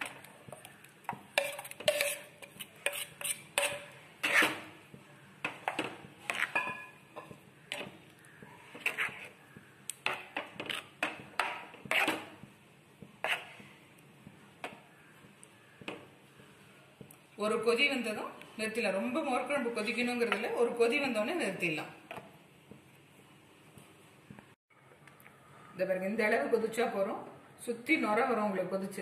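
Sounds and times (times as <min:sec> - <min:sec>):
spoon scraping a cooking pot: 0:00.0 - 0:04.8, 0:05.5 - 0:08.0, 0:08.6 - 0:12.4, 0:13.2 - 0:13.7.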